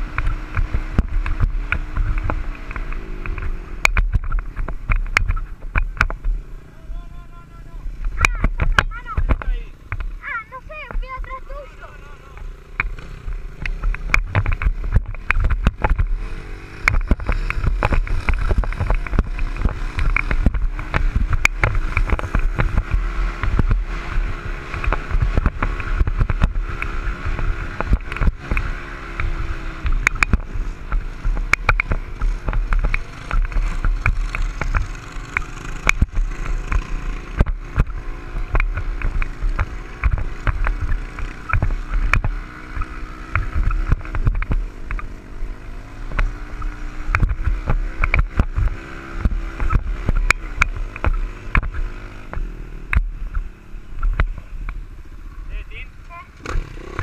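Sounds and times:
dirt bike engine revving: 5.3 - 57.0
knocks and rattles: 12.8 - 16.2.

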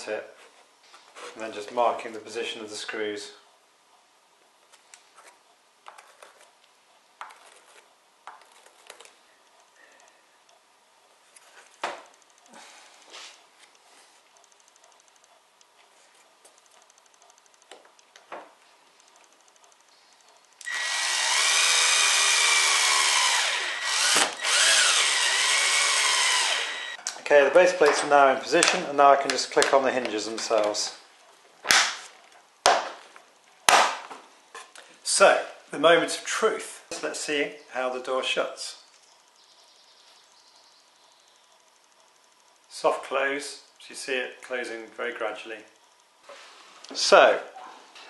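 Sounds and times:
cordless screwdriver driving screws: 20.6 - 27.0.

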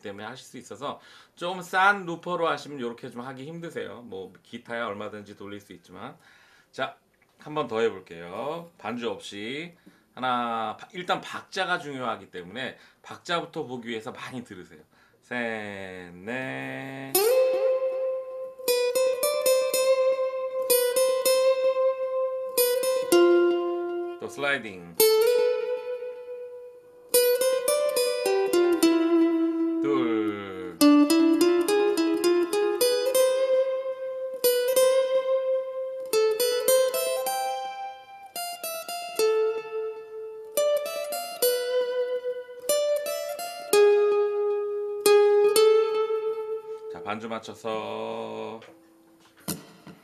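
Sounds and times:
acoustic guitar melody: 16.7 - 50.0.

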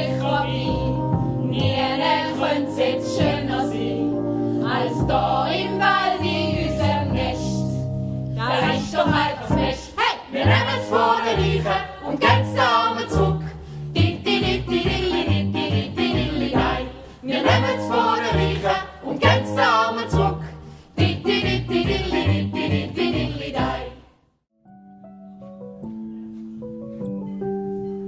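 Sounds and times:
group singing musical song: 0.0 - 24.2
instrumental backing with bass line: 10.5 - 20.4.

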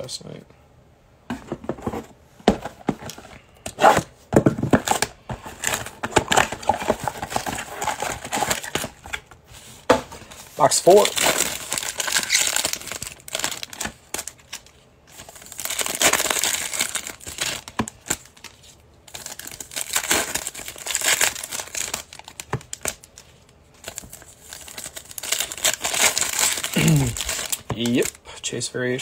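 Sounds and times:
foil packs tearing and crinkling: 4.7 - 9.3, 10.6 - 23.2, 23.8 - 28.2.

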